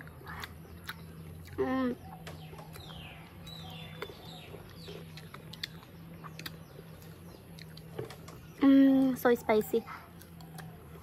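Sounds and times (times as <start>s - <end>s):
steady low hum: 0.0s - 11.0s
bird chirping: 0.2s - 11.0s
crisp chewing clicks: 2.2s - 8.4s, 10.1s - 11.0s.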